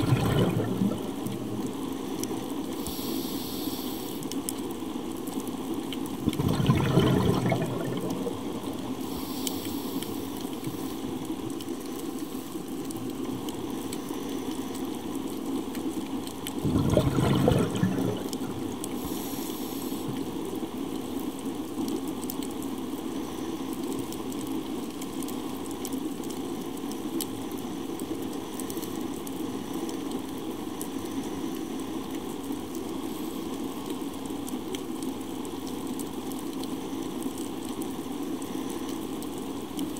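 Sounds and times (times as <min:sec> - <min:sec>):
regulator exhale bubbles: 0:00.0 - 0:04.3, 0:06.2 - 0:11.2, 0:16.5 - 0:20.4
underwater hiss: 0:00.0 - 0:04.4, 0:06.2 - 0:12.7, 0:16.6 - 0:20.8.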